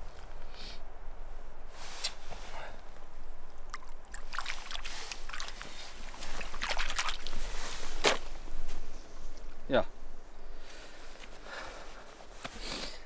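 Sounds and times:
stream running: 2.8 - 9.6
water splashing and sloshing: 3.4 - 8.9.

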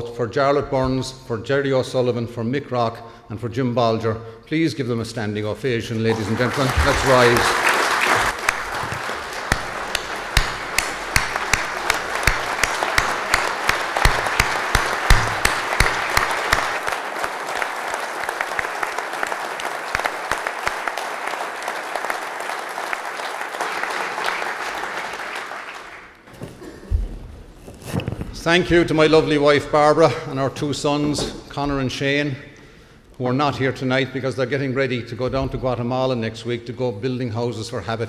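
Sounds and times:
audience applause: 6.1 - 26.2.

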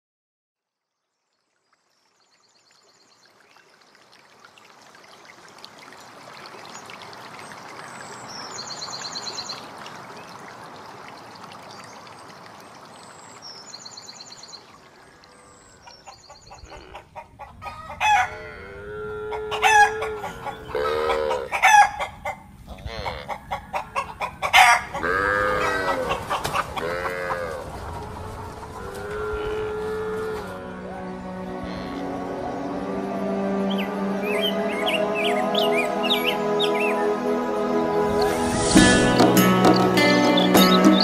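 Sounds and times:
chickens clucking: 16.0 - 18.3, 19.3 - 29.1
rooster crowing: 17.7 - 18.6.

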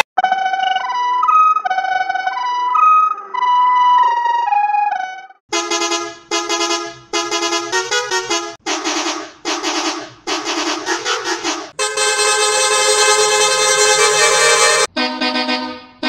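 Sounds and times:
bus horn blasts played as a tune: 5.5 - 16.0
layered bus horns blast: 5.5 - 16.0.

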